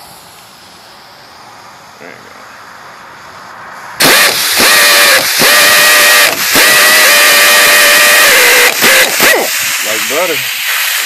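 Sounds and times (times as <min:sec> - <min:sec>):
air impact wrench running: 0:04.0 - 0:11.0.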